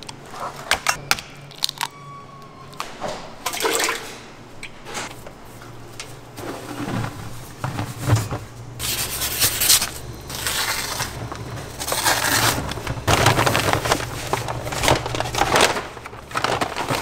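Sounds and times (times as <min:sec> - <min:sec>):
low steady hum: 0:00.0 - 0:17.0
paper sack rustling: 0:06.2 - 0:17.0.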